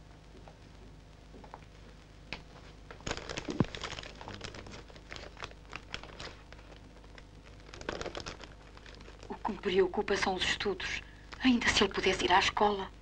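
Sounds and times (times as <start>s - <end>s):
paper crinkling and rustling: 2.7s - 9.6s.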